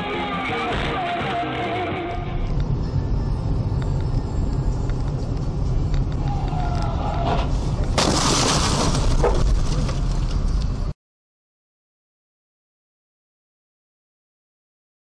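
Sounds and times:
car road and engine rumble: 1.5s - 11.0s
loud car crash: 7.2s - 10.1s.

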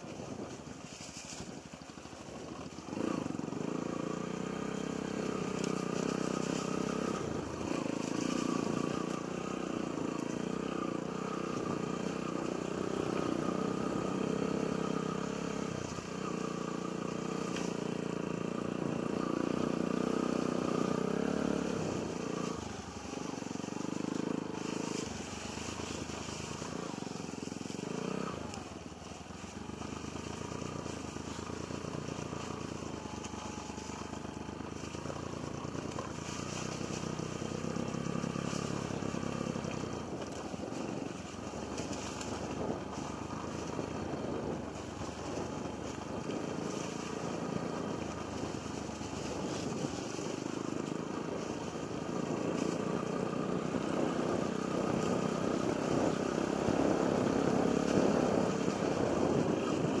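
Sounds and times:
motorcycle engine running: 0.0s - 60.0s.

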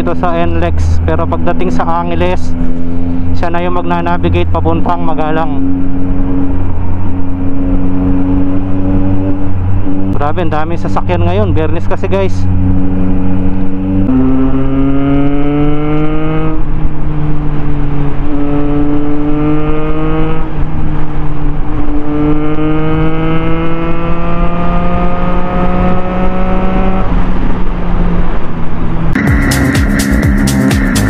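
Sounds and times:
motorcycle engine accelerating: 0.0s - 31.0s.

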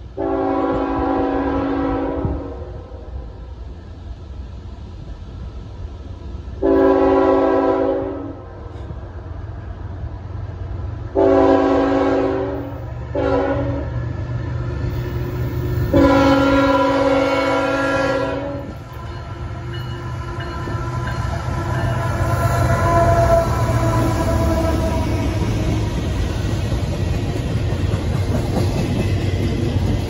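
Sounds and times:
low rumble of freight train: 0.0s - 30.0s
locomotive chime horn blasts: 0.2s - 2.7s, 6.6s - 8.4s, 11.2s - 13.9s, 15.9s - 25.5s.

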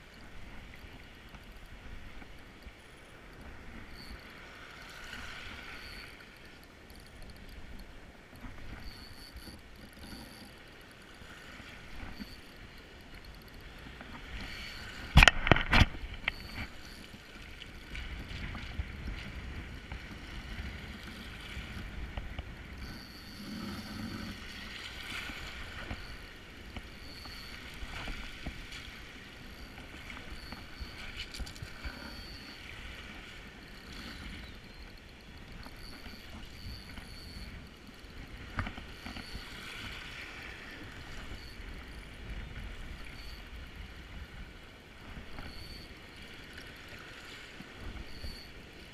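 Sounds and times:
spinning reel winding: 5.8s - 11.1s, 12.0s - 13.8s, 22.8s - 24.7s, 25.3s - 28.0s, 29.4s - 32.6s, 33.7s - 38.0s.

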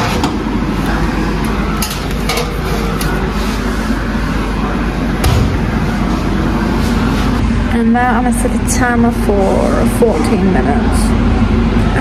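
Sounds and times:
loud steady rushing noise: 0.0s - 12.0s
oven door thump: 5.2s - 5.9s.

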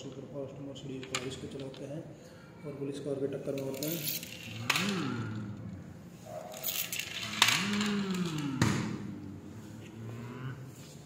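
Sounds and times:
toy cars rolling on stone floor: 0.8s - 2.0s, 3.1s - 10.0s
toy cars knocking together: 3.5s - 5.4s, 6.5s - 9.1s.

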